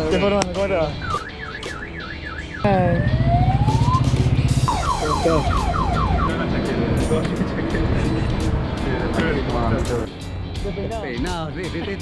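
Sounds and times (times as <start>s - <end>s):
car alarm siren cycling tones: 1.0s - 6.4s.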